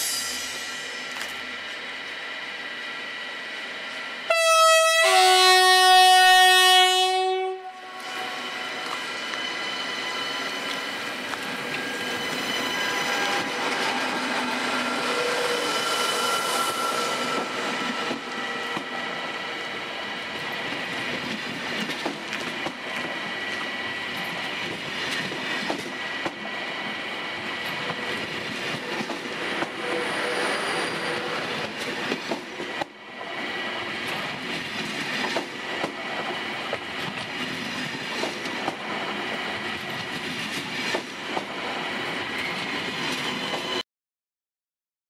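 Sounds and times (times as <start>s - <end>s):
train rolling rumble: 8.0s - 43.8s.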